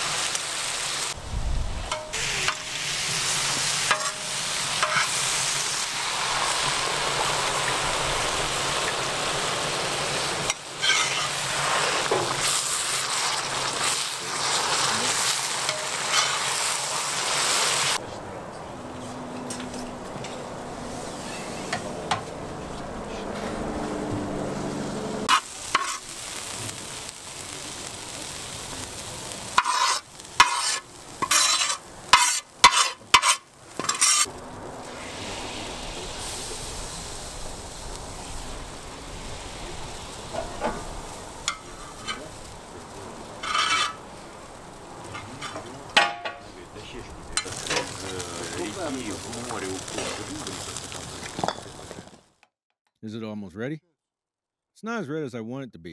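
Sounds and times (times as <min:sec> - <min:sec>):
boiling pot hissing: 0:00.0 - 0:18.0, 0:24.7 - 0:52.3
metal spoon scraping frying pan: 0:03.9 - 0:05.2, 0:10.4 - 0:11.4, 0:15.6 - 0:16.5, 0:29.6 - 0:34.3, 0:43.4 - 0:44.0.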